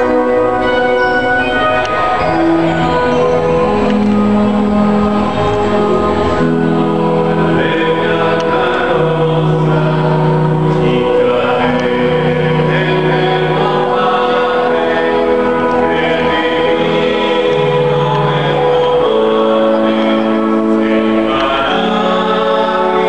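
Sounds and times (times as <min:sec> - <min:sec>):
choir singing a hymn: 0:00.0 - 0:23.0.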